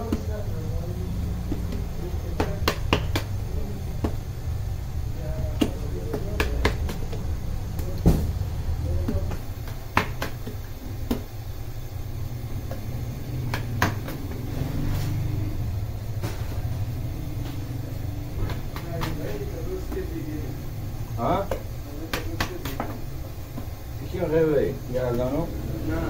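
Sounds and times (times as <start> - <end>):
dough slaps and taps: 0.0 - 0.4, 1.5 - 4.3, 5.4 - 8.4, 9.0 - 11.4, 12.6 - 14.4, 18.4 - 20.2, 21.4 - 23.8
low machine hum: 0.0 - 26.0
dough scraper knocking on wood: 1.5 - 3.3, 9.0 - 11.3.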